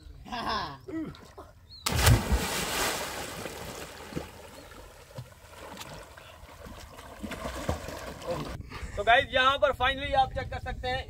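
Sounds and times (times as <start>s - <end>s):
loud splash into water: 1.9s - 4.3s
water churning and sloshing: 1.9s - 8.6s.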